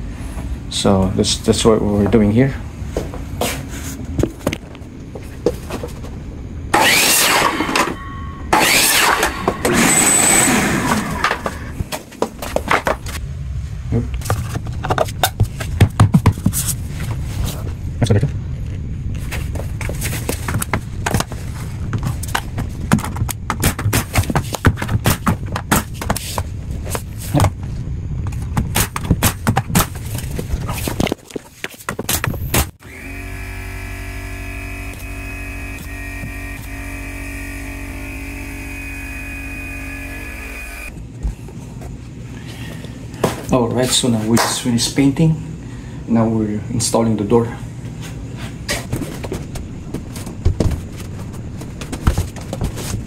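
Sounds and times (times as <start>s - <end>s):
steady low hum: 0.0s - 53.0s
miter saw cutting: 6.7s - 11.7s, 32.8s - 40.9s.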